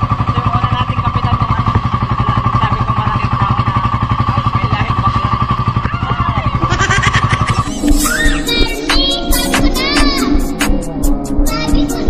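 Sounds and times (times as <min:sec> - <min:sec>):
boat engine chugging: 0:00.0 - 0:08.6
steady engine whine: 0:00.0 - 0:11.9.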